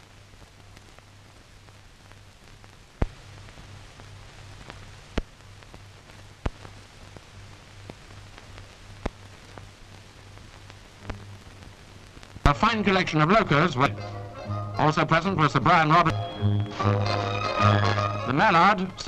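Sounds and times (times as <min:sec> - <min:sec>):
sharp pops and crackles: 0:00.0 - 0:14.0
film hiss and hum: 0:00.0 - 0:19.0.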